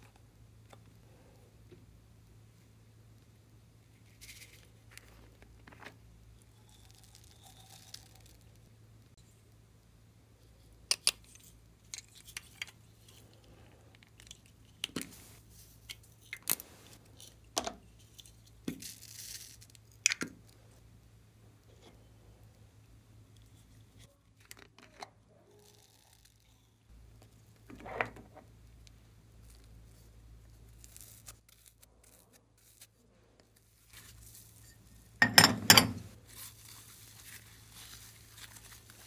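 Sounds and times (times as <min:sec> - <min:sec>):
soft crinkling rustle: 0:00.0 - 0:20.8, 0:28.3 - 0:35.2, 0:36.1 - 0:39.0.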